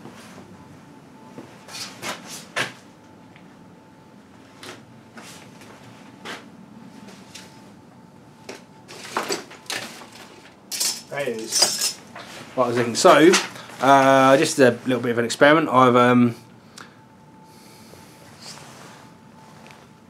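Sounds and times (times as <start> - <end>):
metal rattling and scraping: 8.9 - 13.6
tools knocking and clinking: 10.7 - 12.0.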